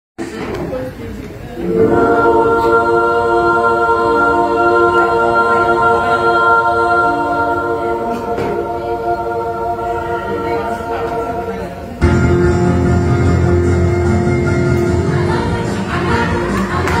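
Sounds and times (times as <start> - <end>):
choir holding a sustained chord: 1.6 - 12.3.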